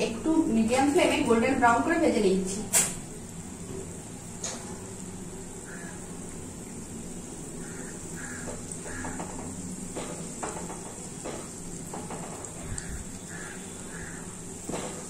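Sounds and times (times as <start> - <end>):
dumplings sizzling in oil: 0.0 - 15.0
bird calling: 5.6 - 6.1, 7.6 - 9.7, 12.4 - 14.5
spatula knocking against pan: 7.6 - 14.0, 14.6 - 15.0.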